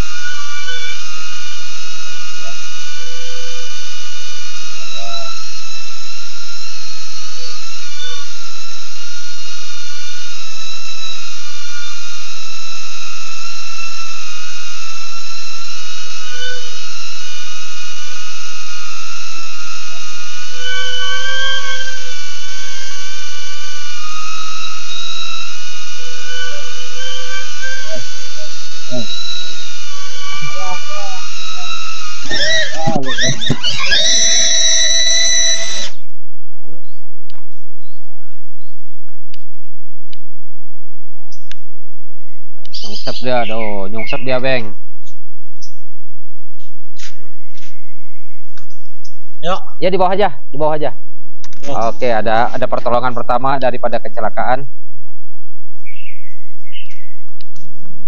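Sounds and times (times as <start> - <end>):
drone motors whining: 0.0 - 36.1.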